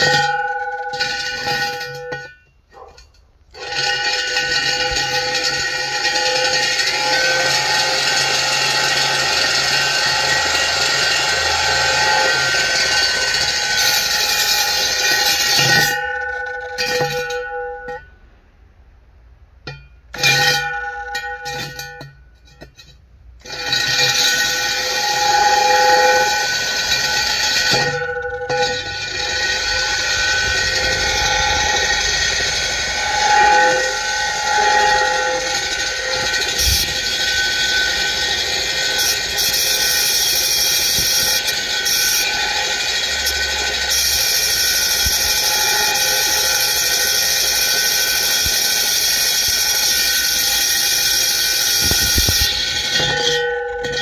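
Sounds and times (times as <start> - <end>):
core drill motor whine: 3.6 - 16.0, 23.6 - 54.0.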